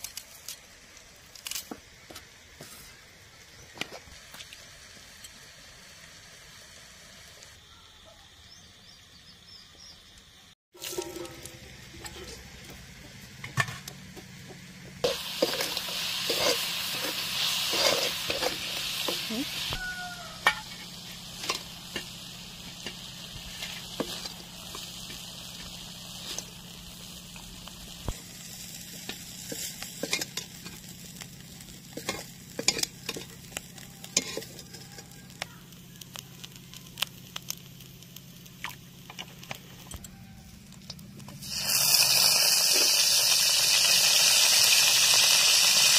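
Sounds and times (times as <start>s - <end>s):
meat sizzling in oil: 15.0s - 39.8s, 41.3s - 45.9s.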